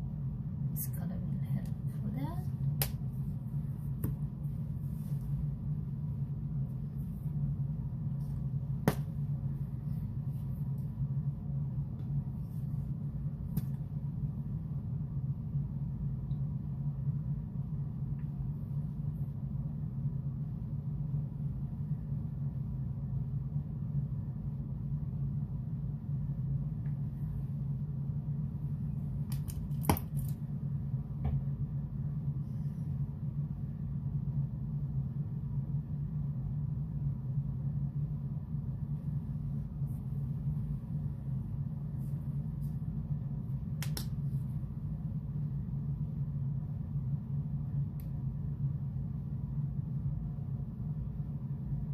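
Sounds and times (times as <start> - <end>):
steady low hum: 0.0 - 51.9.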